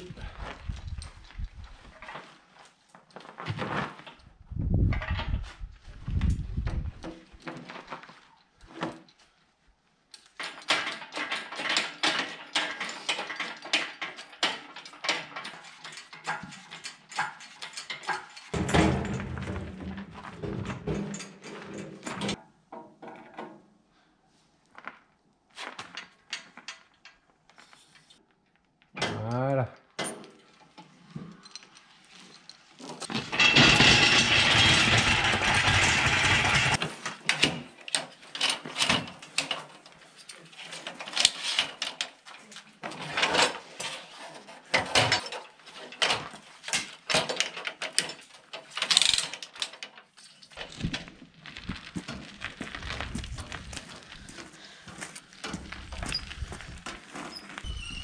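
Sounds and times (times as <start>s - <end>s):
chain and timber clanking: 10.1s - 22.4s, 30.0s - 58.0s
short rising squeak: 57.3s - 58.0s.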